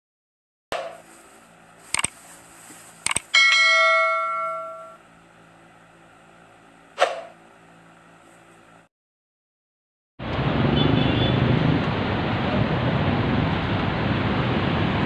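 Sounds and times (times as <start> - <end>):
notification bell ding: 3.4 - 5.0.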